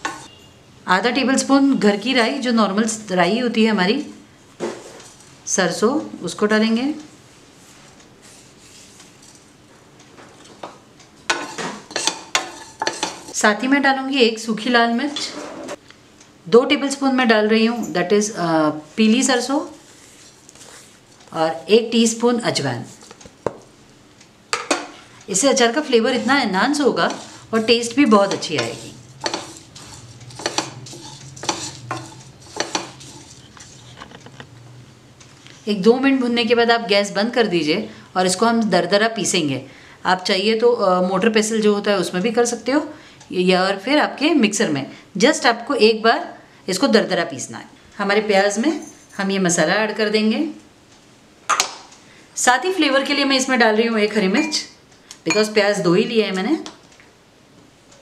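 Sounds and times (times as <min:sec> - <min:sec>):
utensil stirring against a pan: 0:00.0 - 0:00.3, 0:07.6 - 0:09.4, 0:11.3 - 0:13.4, 0:24.6 - 0:34.2
seeds roasting in a pan: 0:11.3 - 0:13.4, 0:24.6 - 0:34.0.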